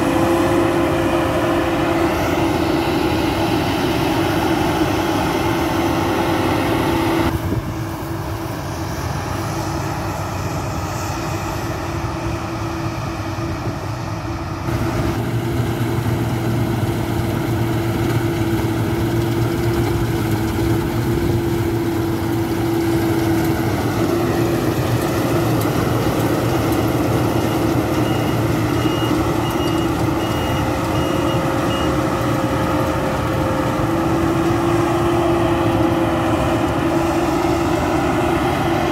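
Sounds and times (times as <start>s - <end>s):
combine harvester engine drone: 0.0s - 38.9s
reversing alarm beeping: 26.4s - 32.1s.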